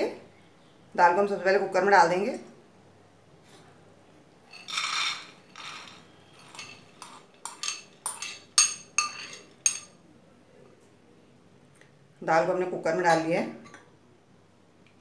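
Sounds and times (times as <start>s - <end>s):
lentils pouring: 4.5s - 7.3s
glass bowl clinking against cooker: 4.6s - 10.0s.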